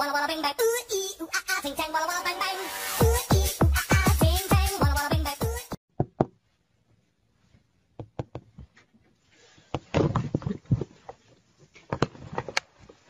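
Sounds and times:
irregular knocks and taps: 8.0s - 8.8s.

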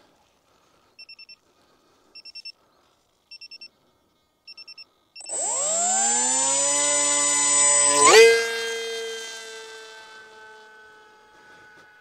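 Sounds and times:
electric motor whine: 5.2s - 12.0s.

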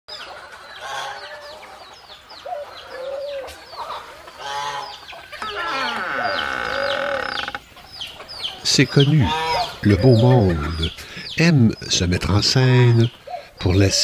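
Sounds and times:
chickens clucking: 0.1s - 14.0s
long held chicken call: 4.4s - 7.6s.

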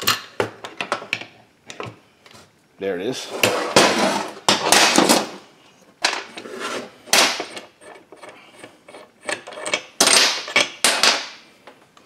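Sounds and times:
metal parts scraping and clunking: 3.2s - 5.4s, 6.0s - 11.2s.

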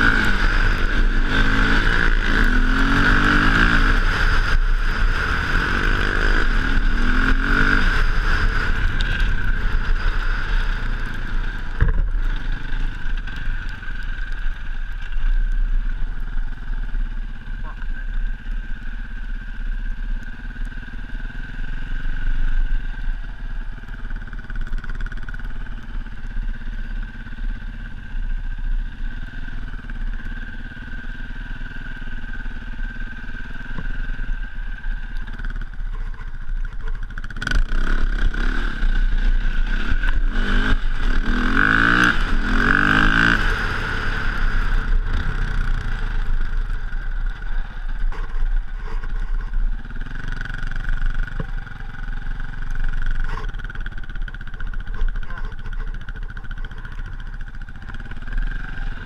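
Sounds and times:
dirt bike engine revving: 0.0s - 13.4s, 37.2s - 59.0s.

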